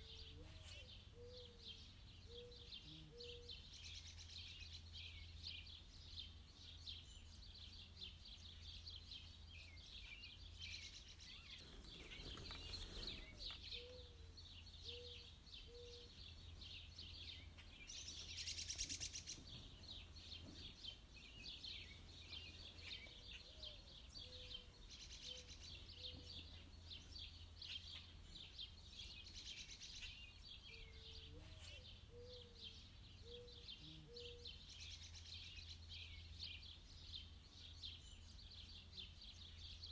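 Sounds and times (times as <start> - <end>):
lower bird calls: 0.0 - 4.3, 9.9 - 36.2
birds chirping: 0.0 - 39.9.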